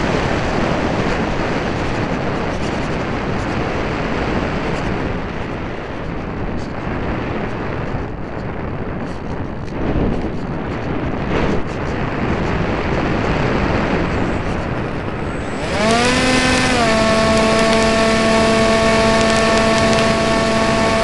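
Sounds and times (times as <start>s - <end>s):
wind rushing over microphone: 0.0s - 21.0s.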